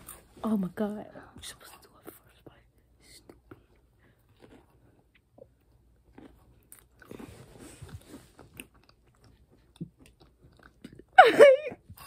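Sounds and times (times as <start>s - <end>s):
crackers crunching: 3.5s - 11.1s.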